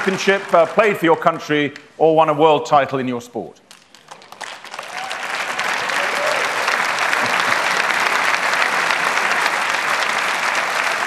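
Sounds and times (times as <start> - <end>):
large audience applauding: 0.0 - 1.3, 3.7 - 11.0.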